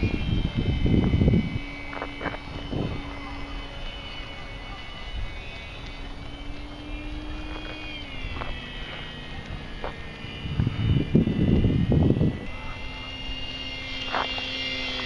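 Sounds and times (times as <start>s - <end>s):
model plane motor whining: 0.0s - 15.0s.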